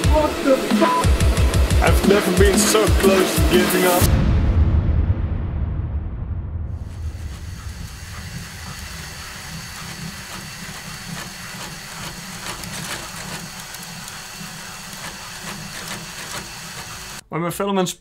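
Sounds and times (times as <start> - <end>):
cordless drill running: 7.2 - 17.2.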